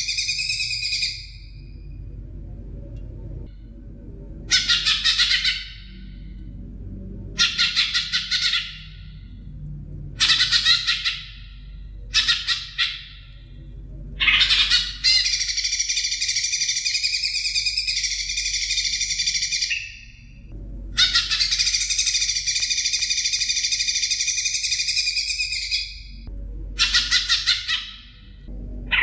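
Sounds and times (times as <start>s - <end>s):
bird warbling: 4.5s - 6.3s, 7.3s - 9.4s, 10.2s - 26.2s, 26.8s - 29.0s.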